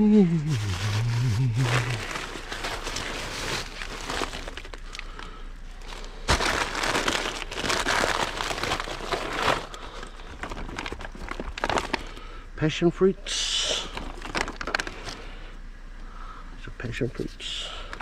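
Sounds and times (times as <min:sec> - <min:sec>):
plastic bags crinkling: 0:00.4 - 0:12.3, 0:13.8 - 0:15.3.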